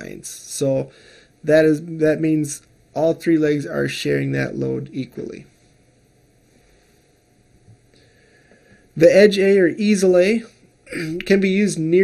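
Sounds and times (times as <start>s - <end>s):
faint room hiss: 0.0s - 12.0s.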